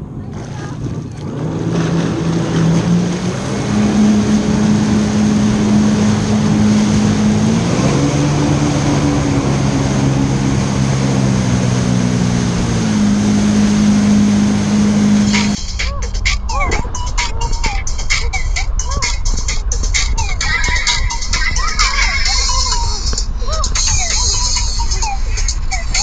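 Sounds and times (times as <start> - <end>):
jet ski engine running: 0.0 - 26.0
rush of water jet and spray: 0.5 - 15.6.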